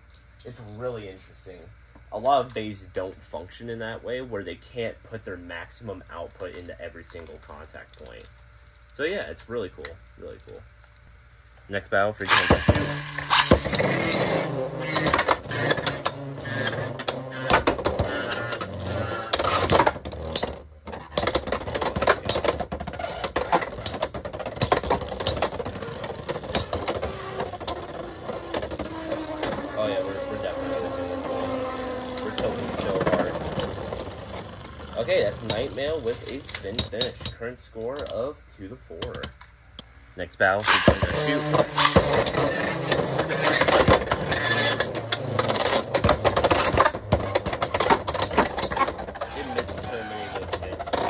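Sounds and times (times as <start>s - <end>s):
spinning tops whirring and scraping: 12.2s - 37.3s, 40.6s - 51.0s.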